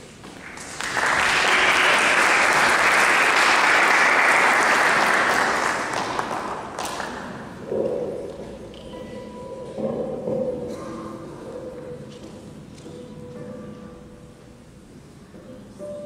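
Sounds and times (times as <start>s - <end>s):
audience applauding: 0.3s - 7.4s.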